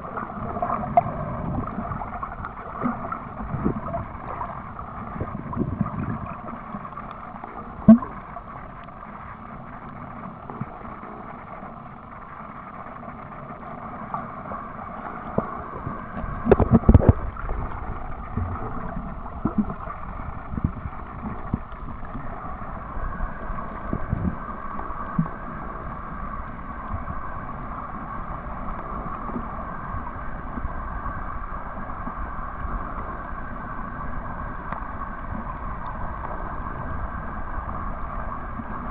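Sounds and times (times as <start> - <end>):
muffled underwater noise: 0.0 - 38.9.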